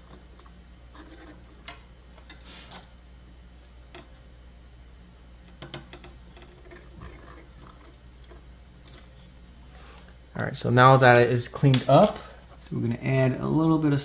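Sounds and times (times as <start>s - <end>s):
low steady hum: 0.0s - 14.0s
soldering iron scraping braid: 0.9s - 3.0s.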